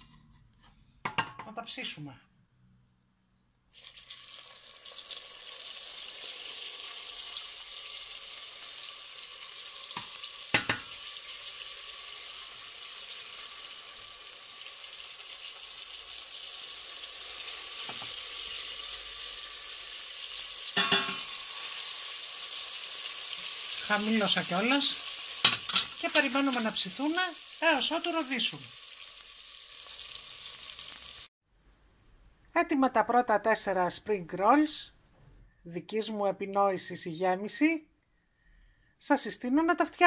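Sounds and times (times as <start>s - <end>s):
food sizzling in hot oil: 3.7s - 31.3s
metal spoon clinking against pot: 20.8s - 21.3s, 25.4s - 26.0s.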